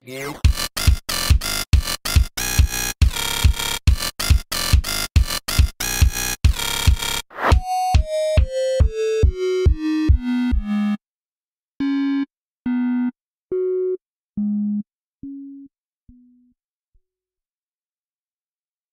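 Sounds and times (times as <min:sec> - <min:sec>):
kick drum beat: 0:00.4 - 0:10.7
synthesizer notes: 0:05.5 - 0:11.0.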